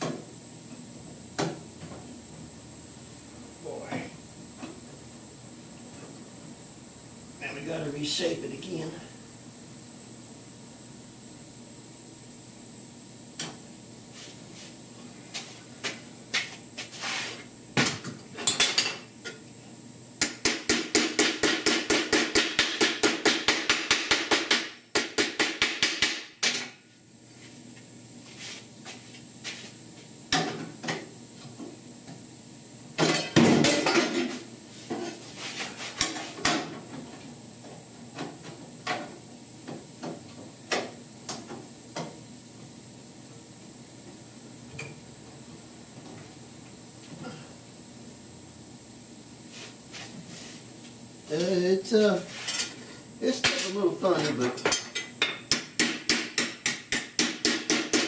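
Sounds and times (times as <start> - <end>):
pneumatic hammer striking sheet steel: 55.5 - 58.0.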